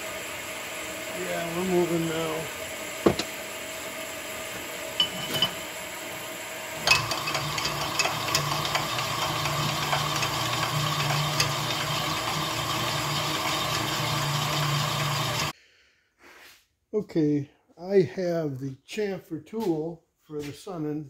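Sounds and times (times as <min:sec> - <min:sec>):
metal clank: 0:05.0 - 0:05.6
honing machine running: 0:06.8 - 0:15.5.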